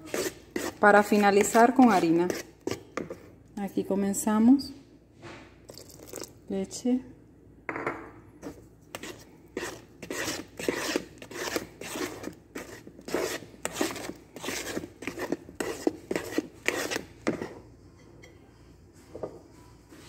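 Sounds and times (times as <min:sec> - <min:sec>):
spatula scraping batter in bowl: 0:00.0 - 0:03.4, 0:08.4 - 0:17.6.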